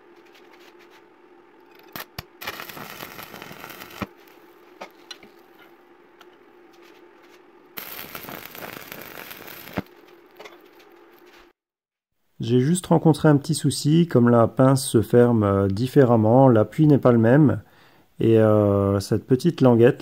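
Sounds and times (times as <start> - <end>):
steady low hum: 0.0 - 11.6
arc welding crackling: 1.7 - 5.7, 7.7 - 11.5.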